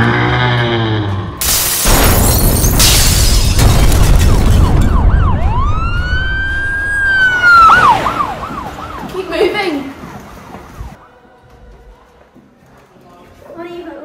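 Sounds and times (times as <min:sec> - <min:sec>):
siren yelping and wailing: 0:04.6 - 0:09.3.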